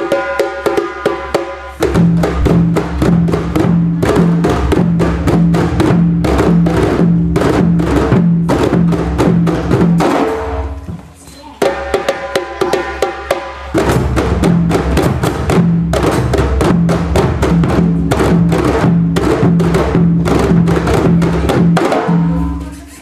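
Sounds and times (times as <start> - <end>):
djembe drums played by hand: 0.0 - 23.0.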